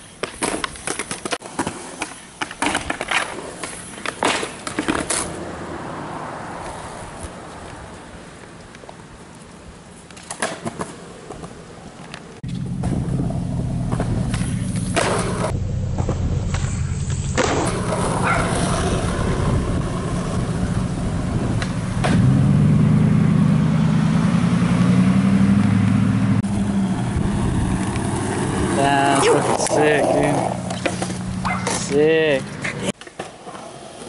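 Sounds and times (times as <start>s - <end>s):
skateboard wheels rolling on asphalt: 0.0s - 34.0s
skateboard clacks: 0.1s - 5.4s, 10.0s - 13.0s, 13.8s - 15.5s, 29.2s - 34.0s.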